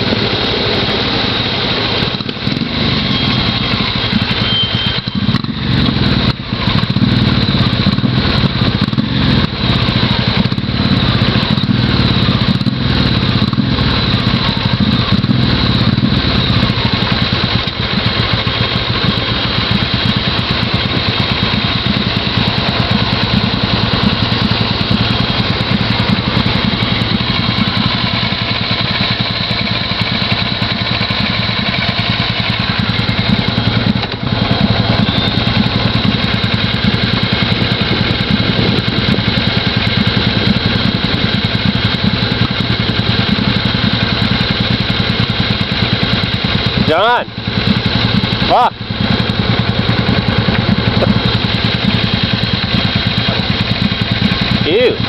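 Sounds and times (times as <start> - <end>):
motorcycle engine running: 0.0 - 55.0.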